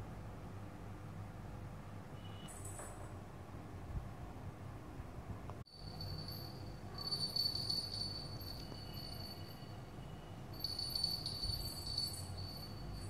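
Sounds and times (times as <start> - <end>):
bell in toy ball jingling: 5.7 - 13.0.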